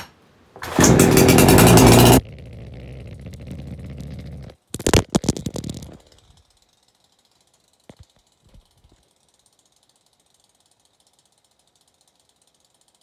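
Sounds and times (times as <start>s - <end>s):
chainsaw engine firing: 0.6s - 2.2s.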